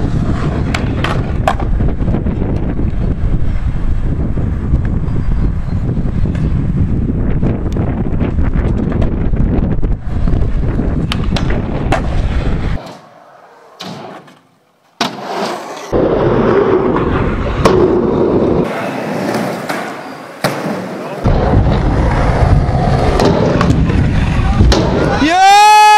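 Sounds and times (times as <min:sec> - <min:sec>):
wind rumbling on microphone: 0:00.0 - 0:12.8, 0:15.9 - 0:18.7, 0:21.2 - 0:25.4
skateboard wheels rolling: 0:00.0 - 0:25.9
skateboard clacks: 0:00.5 - 0:01.8.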